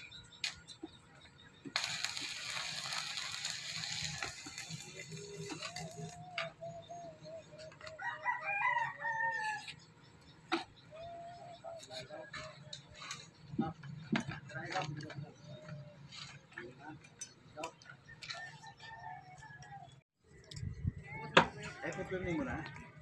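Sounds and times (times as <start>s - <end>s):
steady hissing noise: 1.7s - 6.2s
rooster crowing: 8.0s - 9.6s.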